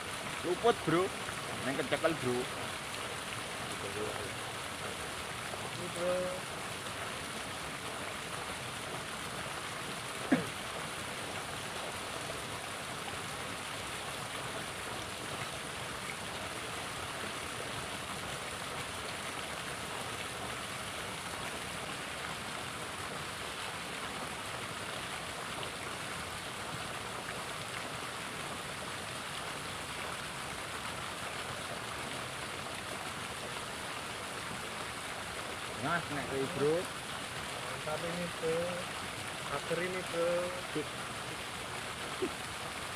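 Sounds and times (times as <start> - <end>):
river water rushing over rocks: 0.0 - 42.9.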